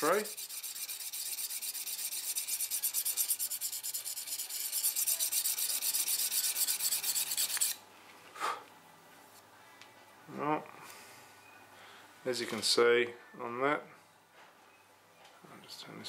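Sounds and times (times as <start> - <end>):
sharpening paddle scraping knife: 0.0 - 7.8.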